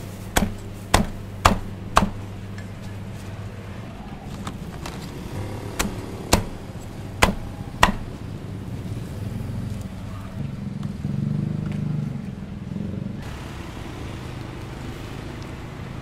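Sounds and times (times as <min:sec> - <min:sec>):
steady low hum: 0:00.0 - 0:16.0
cleaver chopping on cutting board: 0:00.4 - 0:02.2, 0:07.2 - 0:08.1.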